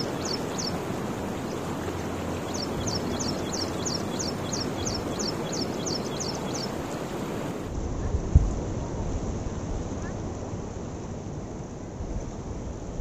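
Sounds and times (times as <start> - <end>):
bird chirping rapidly: 0.0 - 7.3
water rushing through canal: 0.0 - 7.7.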